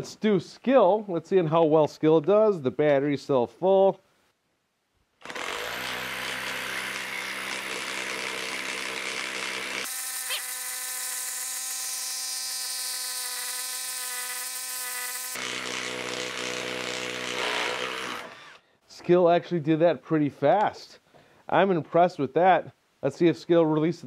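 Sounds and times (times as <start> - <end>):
impact driver rattling buzz: 5.2 - 10.5.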